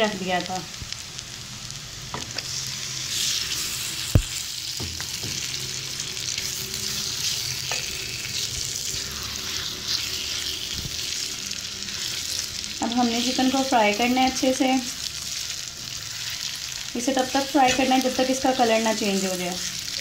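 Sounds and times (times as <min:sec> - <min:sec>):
chicken sizzling in hot oil: 0:00.0 - 0:20.0
spatula stirring in pan: 0:06.4 - 0:20.0.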